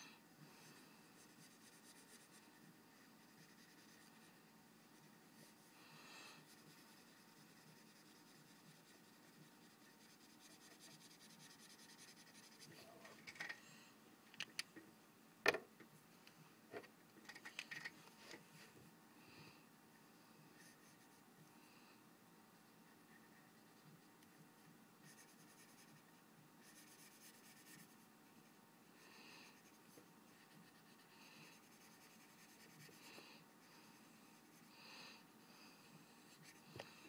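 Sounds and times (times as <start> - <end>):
marker scratching on paper: 1.2 - 5.7, 6.4 - 12.9, 22.6 - 28.0
sharp clicks and knocks: 14.3 - 15.9.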